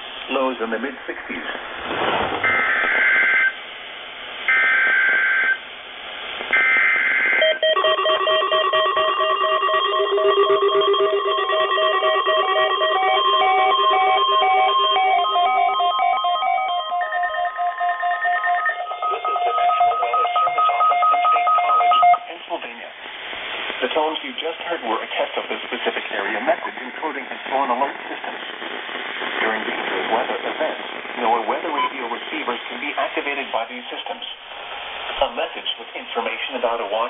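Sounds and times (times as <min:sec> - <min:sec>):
alarm beeping tones: 0:02.4 - 0:03.6, 0:06.6 - 0:22.3
warbling data tones: 0:06.5 - 0:22.2.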